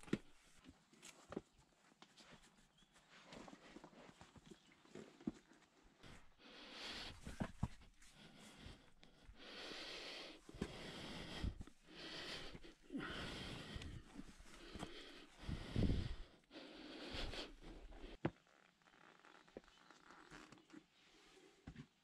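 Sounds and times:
person breathing hard: 6.0s - 18.2s.

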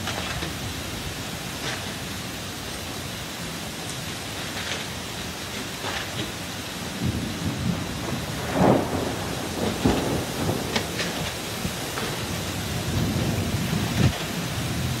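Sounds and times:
heavy rain: 0.0s - 15.0s
strong wind gusts: 5.1s - 15.0s
wind buffeting microphone: 6.6s - 15.0s.

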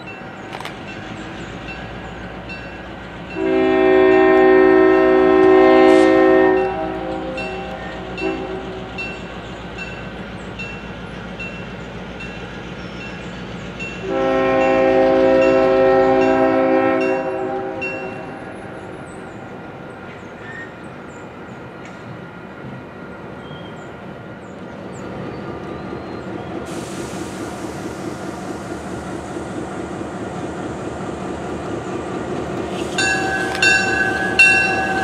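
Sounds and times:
locomotive engine rumbling: 0.0s - 35.0s
locomotive air horn blasts: 3.4s - 8.9s, 14.0s - 18.8s
crossing bell dinging: 6.5s - 12.4s, 13.8s - 18.5s, 33.0s - 35.0s.

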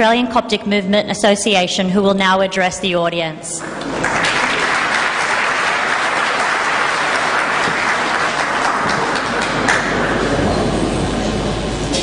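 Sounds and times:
audience applauding: 3.6s - 10.4s.

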